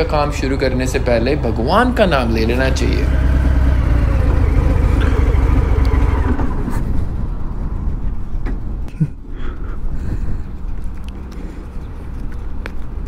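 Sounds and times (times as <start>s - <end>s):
motorcycle engine rumbling: 0.0s - 8.8s.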